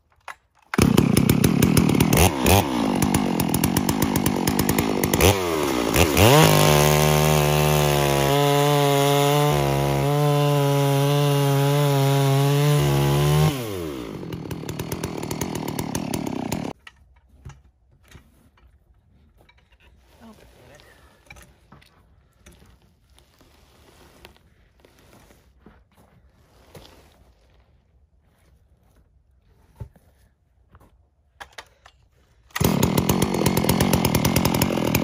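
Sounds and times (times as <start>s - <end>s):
chainsaw cutting a log: 0.8s - 16.8s, 32.6s - 35.0s.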